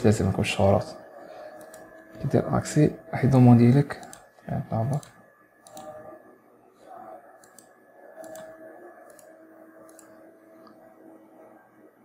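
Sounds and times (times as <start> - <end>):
computer mouse clicks: 1.5 - 2.3, 4.0 - 6.0, 7.4 - 10.8.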